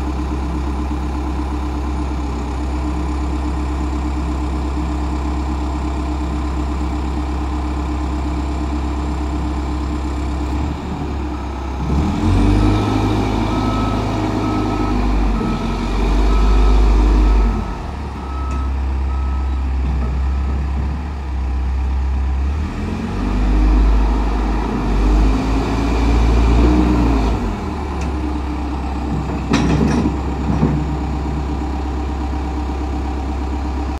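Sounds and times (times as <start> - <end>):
diesel engine idling and revving: 0.0 - 33.9
reversing alarm beeping: 12.3 - 19.6.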